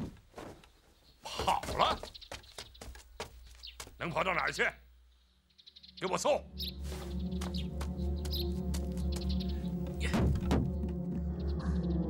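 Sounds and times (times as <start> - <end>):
background music low drone: 5.5 - 12.0.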